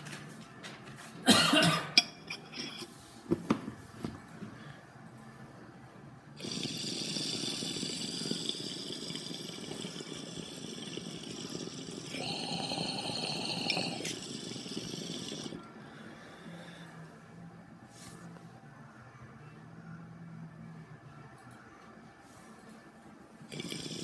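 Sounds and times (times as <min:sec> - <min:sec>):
water gurgling in a bong: 0:06.4 - 0:15.6, 0:23.5 - 0:24.0.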